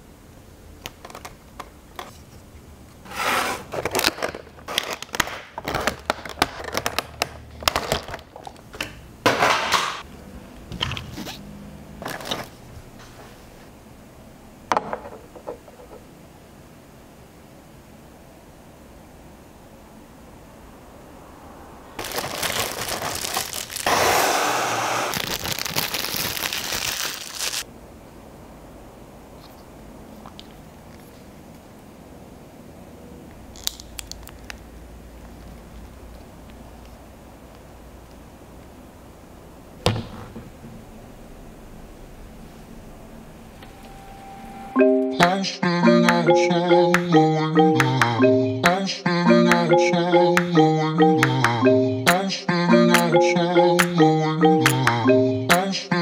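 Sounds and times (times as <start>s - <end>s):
plastic packaging crinkling: 3.6s - 8.6s, 22.0s - 24.1s, 25.1s - 27.7s
plastic clicks and crackles: 3.8s - 8.9s.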